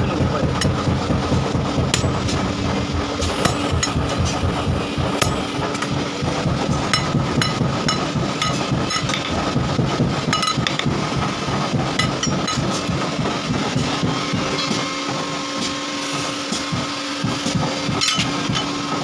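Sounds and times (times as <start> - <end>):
low rumble: 0.0 - 10.3
hammer striking steel on anvil: 0.6 - 6.0, 6.7 - 9.4, 10.3 - 10.9, 12.0 - 12.9, 17.4 - 18.7.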